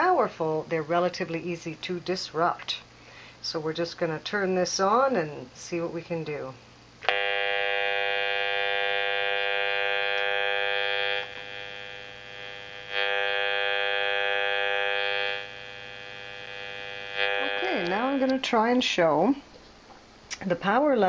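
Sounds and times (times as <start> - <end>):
meter buzzing: 7.0 - 19.3.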